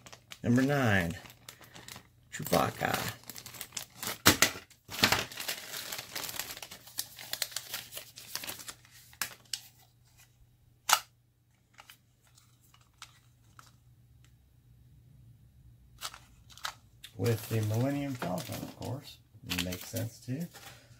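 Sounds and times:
plastic bag crinkling: 0.0 - 9.8, 16.0 - 20.9.

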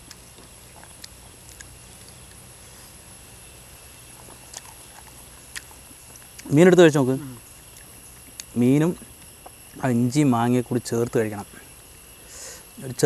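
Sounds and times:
faint high-pitched hiss: 0.0 - 13.0.

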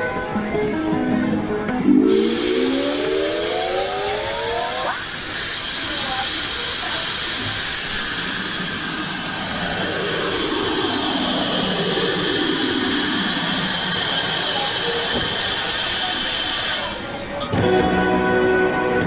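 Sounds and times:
low tone sliding down: 1.7 - 5.2, 7.8 - 14.4
vending machine suction hiss: 2.1 - 17.4.

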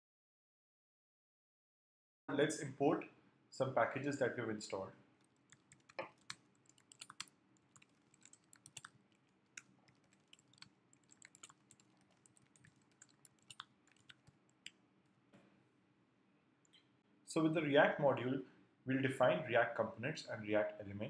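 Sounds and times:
faint keyboard typing: 5.2 - 14.8.

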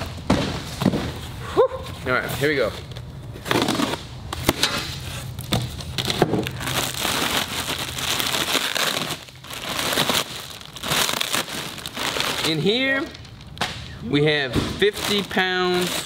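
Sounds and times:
foil liner crinkling: 4.6 - 13.6, 14.8 - 16.0.

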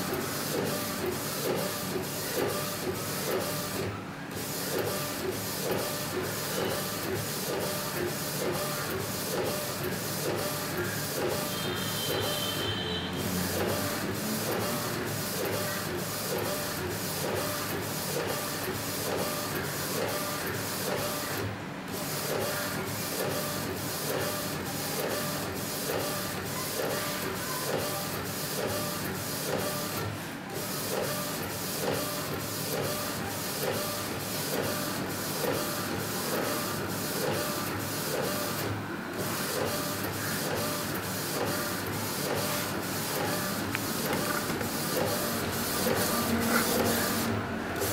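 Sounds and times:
printer carriage shuttling: 43.2 - 47.9.

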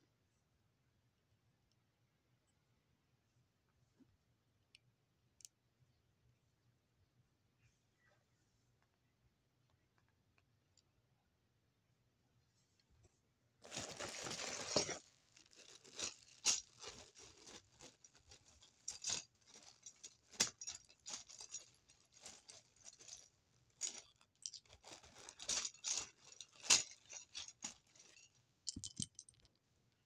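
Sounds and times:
plastic pieces clicking and rattling: 23.8 - 29.5.

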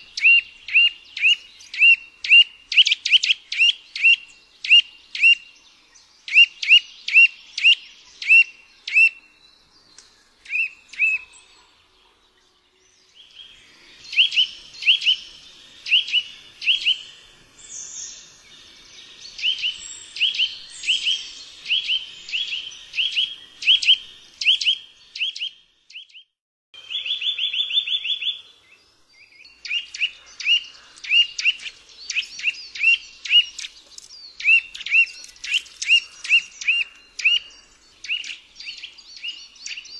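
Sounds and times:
bird rapid trill: 29.7 - 37.5.

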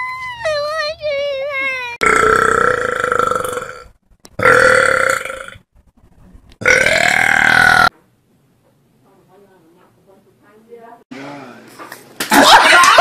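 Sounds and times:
woman belching loudly: 2.0 - 5.6, 6.6 - 7.9.

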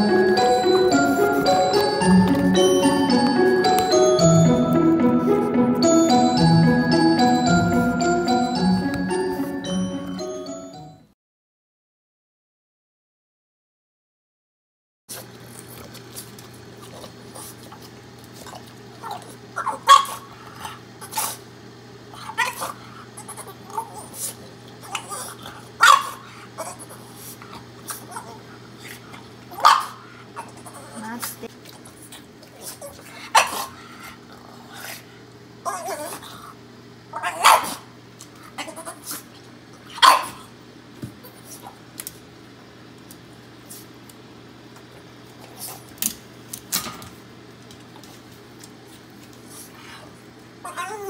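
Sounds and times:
microwave oven humming: 0.0 - 11.1, 15.1 - 51.0
dog whining: 22.2 - 26.0, 35.6 - 36.4, 50.6 - 51.0.

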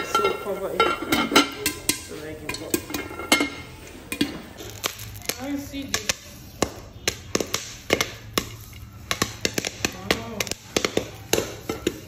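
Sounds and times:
popcorn popping: 0.0 - 12.0.

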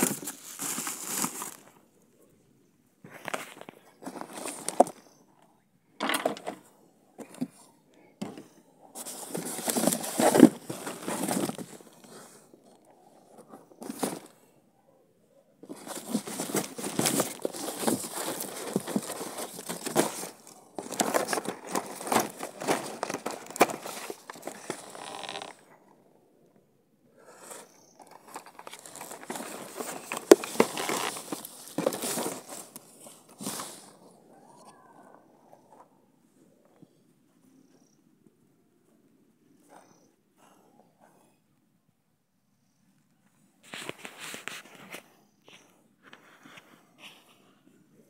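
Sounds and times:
cardboard boxes rustling and scraping: 0.0 - 1.7, 3.1 - 5.2, 8.2 - 14.4, 15.6 - 25.6, 27.5 - 34.2.

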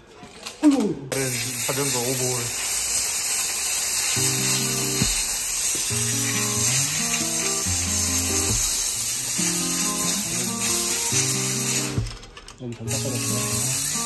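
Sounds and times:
steady hiss: 1.1 - 12.1, 12.9 - 14.0
held chords background music: 4.2 - 14.0.

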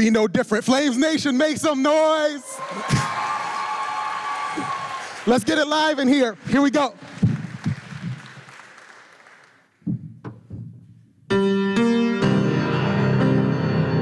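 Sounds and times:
crowd noise: 2.3 - 8.6
grand piano playing: 11.3 - 14.0.

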